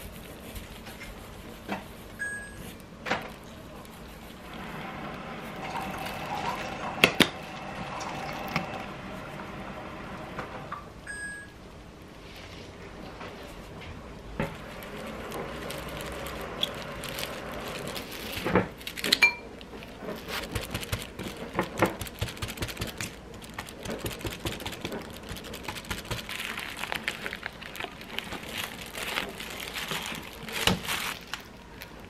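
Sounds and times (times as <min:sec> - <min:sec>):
glass ringing: 0:19.2 - 0:19.5.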